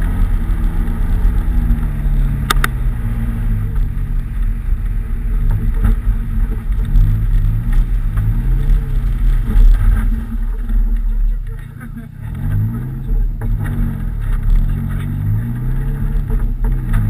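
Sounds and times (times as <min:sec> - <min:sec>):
car engine revving: 0:00.0 - 0:17.0
sharp clicks: 0:02.5 - 0:02.8.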